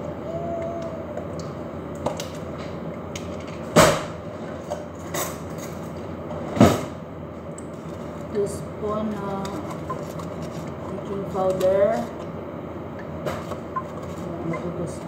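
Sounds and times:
steady background noise: 0.0s - 15.0s.

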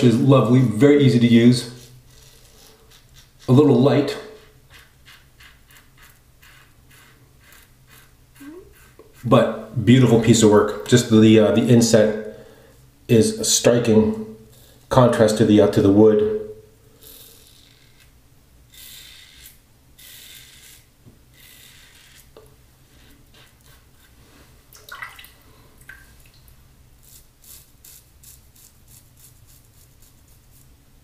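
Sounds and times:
razor scraping stubble: 0.4s - 10.1s, 17.0s - 24.2s, 27.0s - 30.7s.

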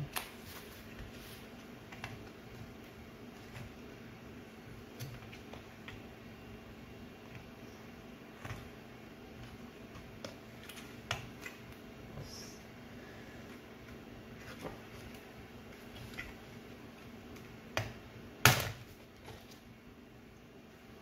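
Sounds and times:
loud plastic snap: 17.8s - 18.9s.

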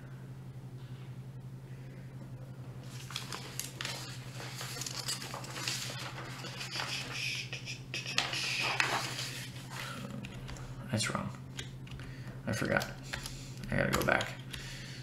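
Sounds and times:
low electrical hum: 0.0s - 15.0s
rustling and crinkling: 2.8s - 7.0s.

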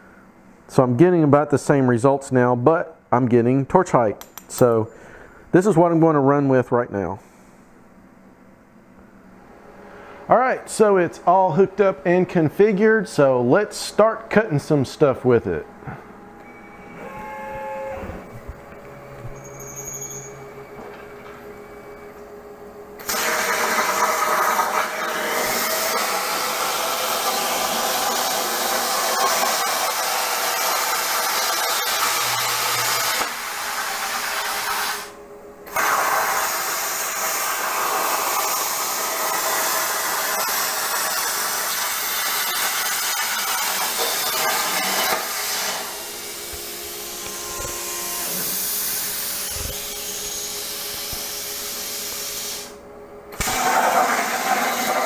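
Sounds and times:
plasma cutter hissing: 23.0s - 35.1s, 35.7s - 52.8s, 53.4s - 55.0s.

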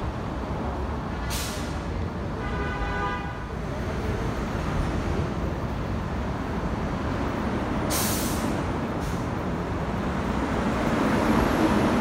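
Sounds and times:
diesel locomotive rumble: 0.0s - 2.4s, 3.5s - 12.0s
air brakes hissing: 1.2s - 1.9s, 7.8s - 9.4s.

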